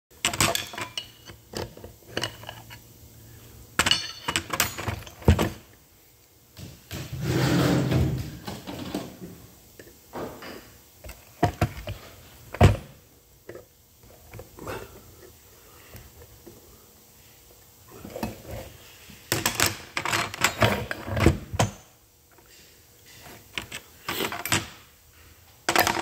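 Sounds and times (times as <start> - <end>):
metal tools clinking and knocking: 0.2 - 2.8, 3.8 - 5.6, 23.2 - 24.8, 25.7 - 26.0
scraping rub: 7.2 - 8.2.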